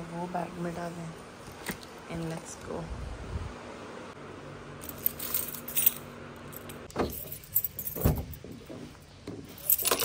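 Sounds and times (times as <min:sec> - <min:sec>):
keys jingling: 0:04.8 - 0:08.5, 0:09.5 - 0:10.0.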